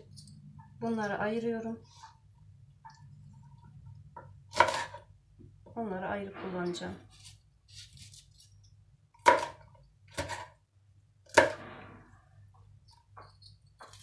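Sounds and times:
knife chopping on cutting board: 4.5 - 5.0, 9.2 - 10.5, 11.3 - 11.7.

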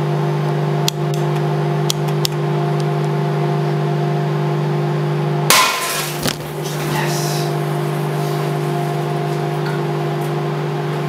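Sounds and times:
microwave oven humming: 0.0 - 11.0
light bulb bursting with crack: 5.5 - 6.6.

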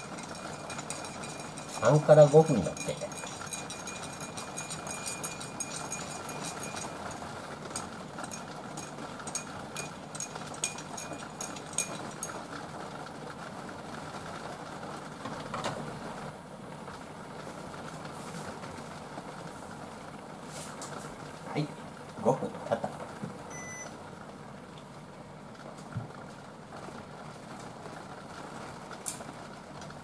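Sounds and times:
spoon clinking in ceramic cup: 0.2 - 7.1.

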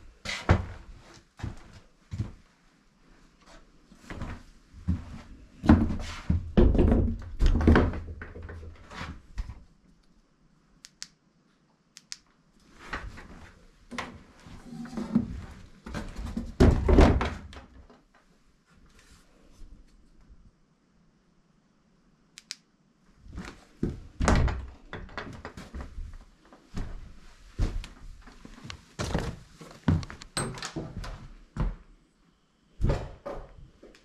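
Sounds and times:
sharp clicks: 10.8 - 11.2, 11.9 - 12.4, 22.4 - 22.7.

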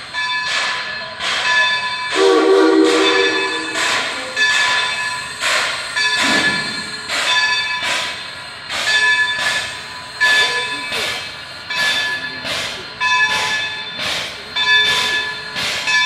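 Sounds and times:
steam locomotive chuffing: 0.0 - 16.0
three-chime train whistle: 2.1 - 4.6.

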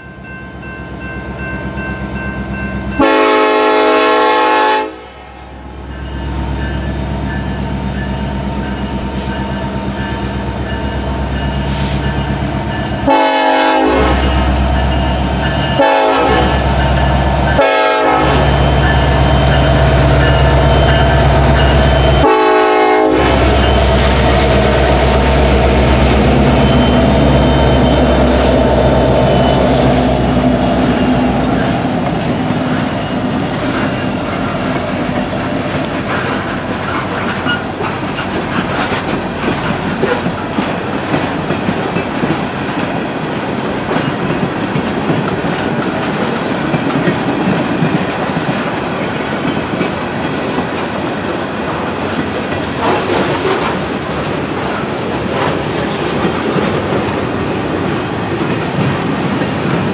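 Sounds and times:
diesel locomotive engine rumble: 0.0 - 59.9
locomotive horn blasts: 2.9 - 5.3, 13.0 - 14.5, 15.8 - 16.8, 17.5 - 18.6, 22.2 - 23.7.

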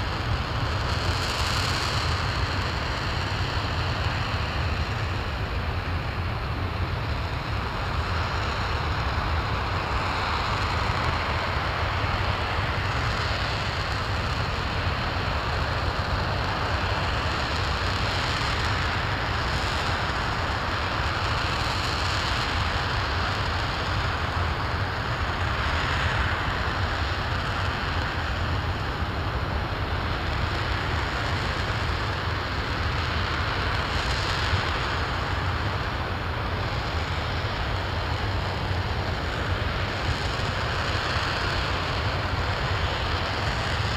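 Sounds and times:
rocket engine roaring: 0.0 - 43.9.

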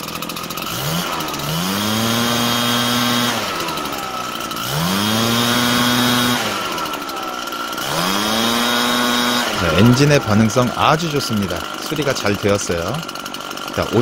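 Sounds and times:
backpack blower engine revving: 0.0 - 14.0.

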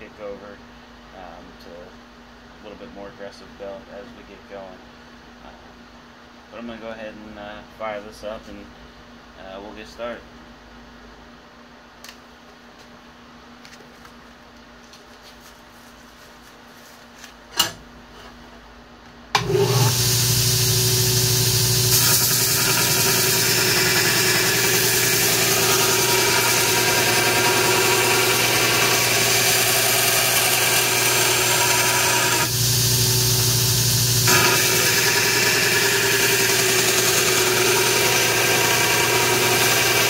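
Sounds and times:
belt grinder running: 19.4 - 40.0.

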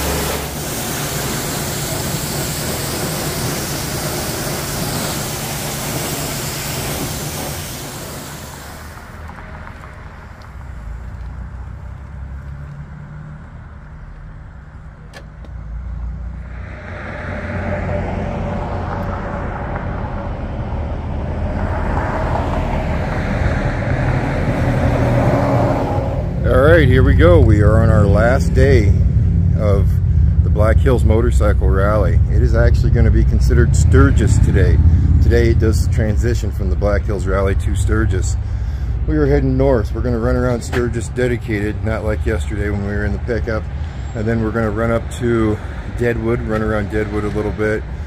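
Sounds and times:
pressure washer spraying: 0.0 - 9.2
low vehicle engine rumble: 0.0 - 48.0.

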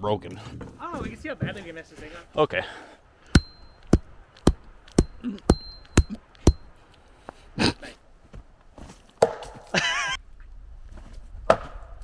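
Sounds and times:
metal tomahawk heads clinking: 3.3 - 6.8.

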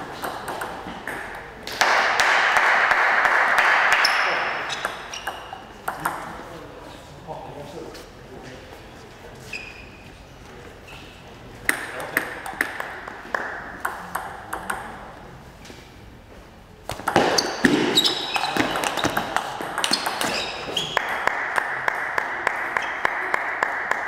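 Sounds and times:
table tennis ball clicks: 16.9 - 21.0.

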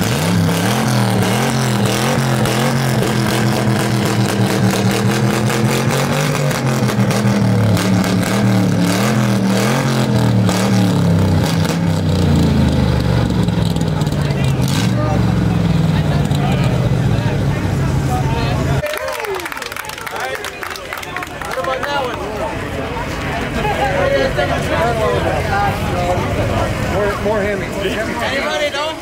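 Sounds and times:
car engine revving: 0.0 - 18.8.

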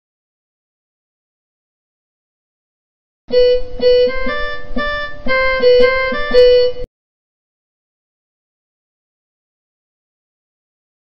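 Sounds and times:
violin melody: 3.3 - 6.9.

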